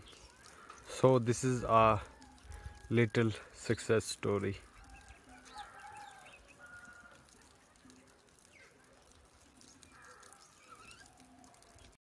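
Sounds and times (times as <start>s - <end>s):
faint bird calls: 9.6s - 11.9s.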